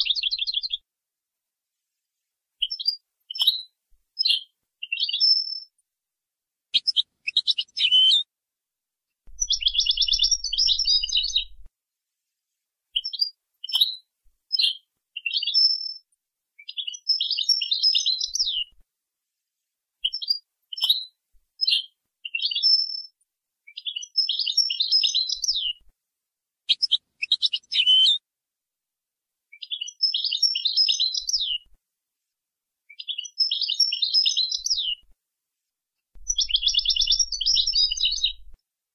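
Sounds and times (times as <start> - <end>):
goldfinch chirping and trilling: 0.0 - 0.8, 2.6 - 5.7, 6.8 - 8.2, 9.4 - 11.7, 13.0 - 16.0, 16.6 - 18.7, 20.0 - 23.1, 23.7 - 25.8, 26.7 - 28.2, 29.6 - 31.7, 33.0 - 35.0, 36.2 - 38.6.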